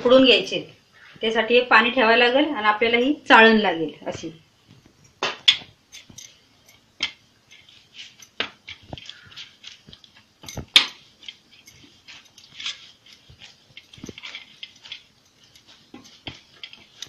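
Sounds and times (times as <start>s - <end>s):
dough kneaded by hand: 3.9s - 17.0s.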